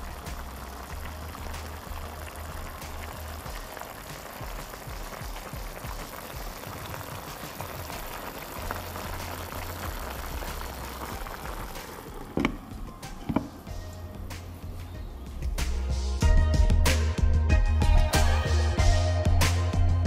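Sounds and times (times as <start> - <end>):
pot simmering and bubbling: 0.0 - 15.8
background music with bass: 0.0 - 20.0
clunk: 12.4 - 13.6.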